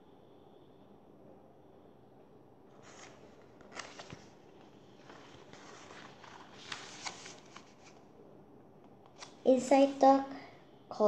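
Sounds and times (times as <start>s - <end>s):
book pages rustling: 2.7s - 8.1s, 9.0s - 10.0s.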